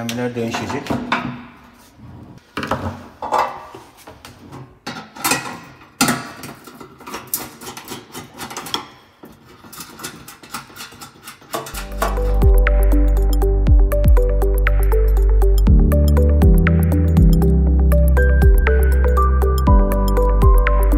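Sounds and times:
metal cooktop clicking and knocking: 0:04.8 - 0:09.1
screwdriver working on metal: 0:06.7 - 0:12.2.

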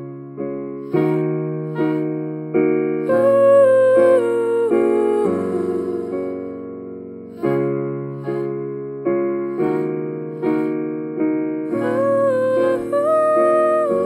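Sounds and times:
electric piano chords: 0:00.0 - 0:14.0
person humming: 0:03.1 - 0:06.4, 0:11.7 - 0:14.0.

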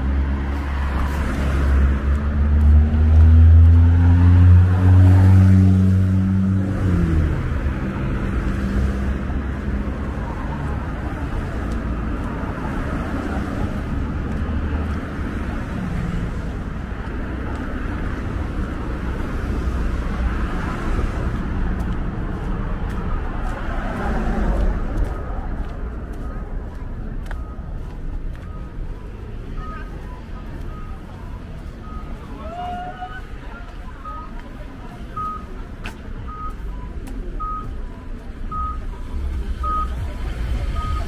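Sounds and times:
vehicle engine passing: 0:00.0 - 0:32.0
traffic noise: 0:00.0 - 0:41.0.

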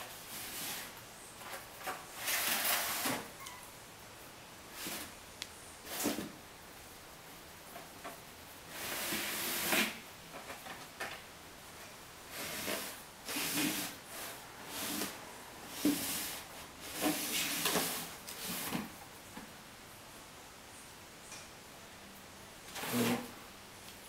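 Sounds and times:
cardboard boxes scraping on tile: 0:00.0 - 0:03.4, 0:04.7 - 0:05.2, 0:05.8 - 0:06.4, 0:08.7 - 0:10.6, 0:12.3 - 0:18.9, 0:22.7 - 0:23.4.

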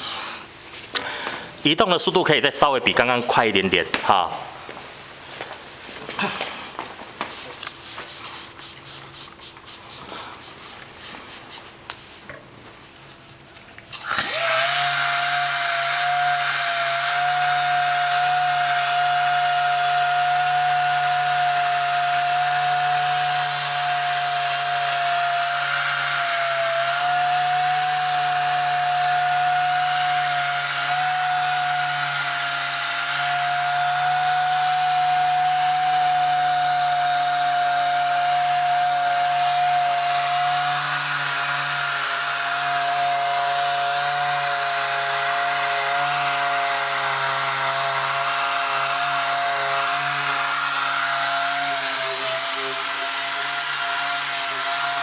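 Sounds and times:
air polisher whining: 0:07.2 - 0:12.1, 0:13.9 - 0:55.0
rhythmic scrubbing strokes: 0:07.3 - 0:11.9.

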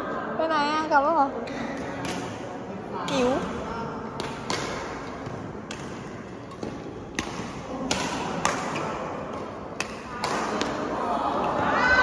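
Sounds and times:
badminton racket hitting shuttlecock: 0:01.5 - 0:02.4, 0:03.0 - 0:10.9.

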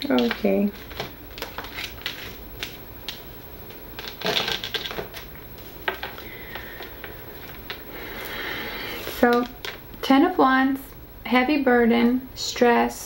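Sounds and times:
cards clicking and slapping on table: 0:00.0 - 0:03.3.

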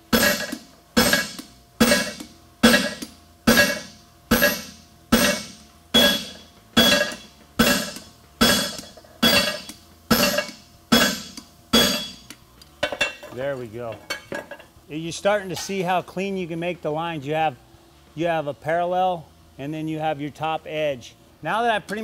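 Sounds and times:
hammer striking hot steel on anvil: 0:00.0 - 0:13.3.

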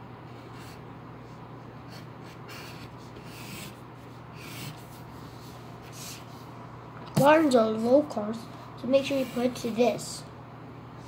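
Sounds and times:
steady low hum: 0:00.0 - 0:11.0
pencil scratching on paper: 0:01.8 - 0:06.3, 0:09.0 - 0:09.8.

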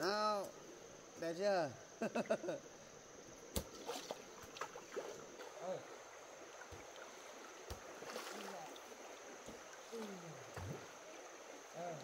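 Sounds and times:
stones skipping on water: 0:03.5 - 0:05.6, 0:06.6 - 0:10.9
water lapping: 0:03.7 - 0:12.0.

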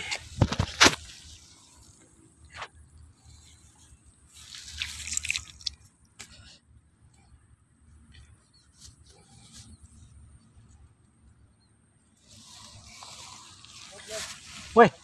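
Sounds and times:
mud and water squelching: 0:04.3 - 0:06.4
water splashing: 0:04.4 - 0:05.8.

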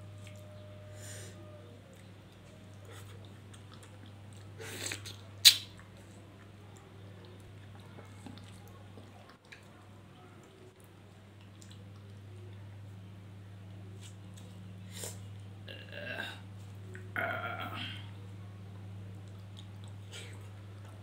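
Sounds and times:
steady low hum: 0:00.0 - 0:21.0
person biting fruit: 0:04.7 - 0:05.8
sharp mouth sound: 0:04.8 - 0:05.7.

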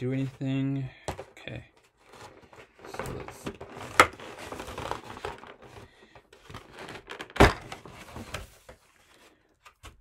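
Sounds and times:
packaging crinkling and rustling: 0:01.8 - 0:08.8.

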